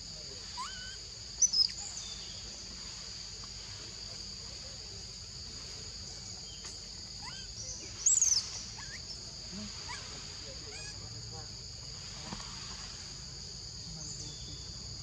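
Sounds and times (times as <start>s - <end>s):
insect chorus: 0.0s - 15.0s
monkeys squealing: 0.6s - 1.7s, 7.2s - 7.5s, 10.7s - 11.0s.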